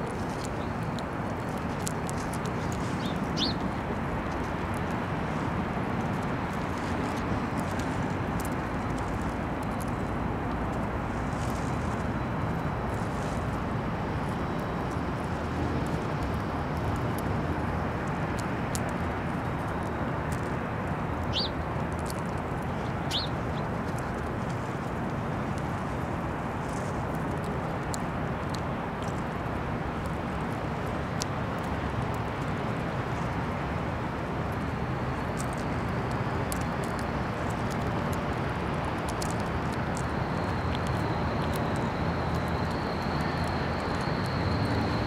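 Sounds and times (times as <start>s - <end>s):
high bird chirps: 3.0s - 3.6s, 21.3s - 21.5s, 23.1s - 23.3s.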